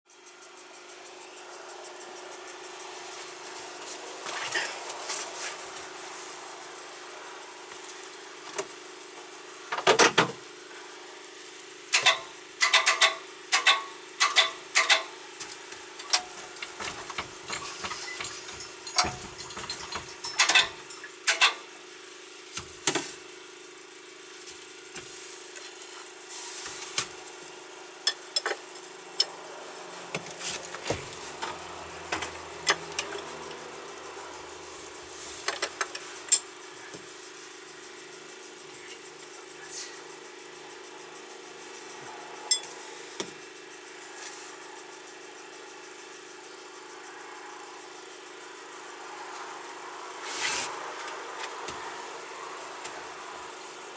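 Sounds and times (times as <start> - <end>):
steady hum: 0.1 - 53.9
hand tools clinking on metal: 16.0 - 21.6.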